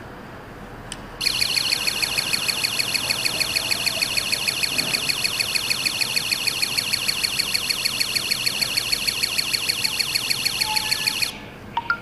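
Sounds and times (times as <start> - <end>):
high-pitched electronic alarm beeps: 1.2 - 12.0.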